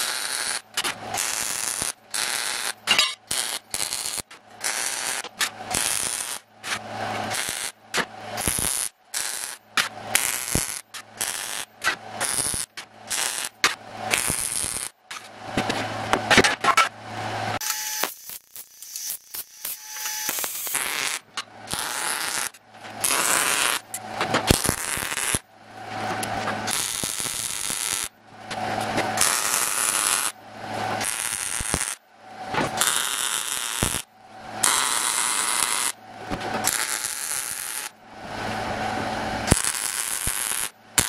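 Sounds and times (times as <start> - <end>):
welding arc crackling sizzle: 0.0 - 16.4, 17.6 - 41.0
welder low hum: 0.0 - 41.0.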